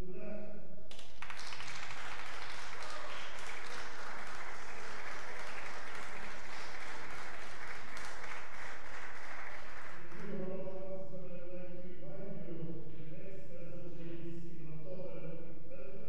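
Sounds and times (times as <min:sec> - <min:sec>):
audience applauding: 0:00.9 - 0:10.3.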